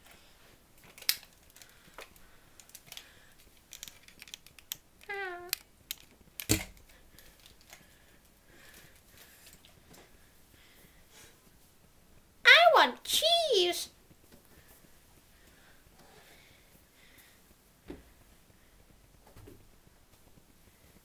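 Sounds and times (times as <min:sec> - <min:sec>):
toys clicking and knocking: 0:00.8 - 0:07.8.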